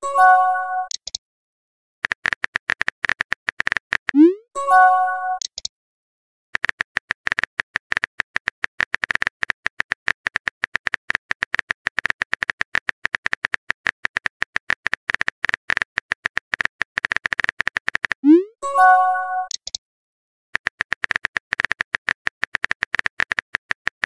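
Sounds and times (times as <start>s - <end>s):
phone keyboard typing clicks: 0.8s - 1.2s, 2.0s - 4.3s, 5.3s - 5.7s, 6.6s - 18.2s, 19.5s - 19.8s, 20.6s - 24.0s.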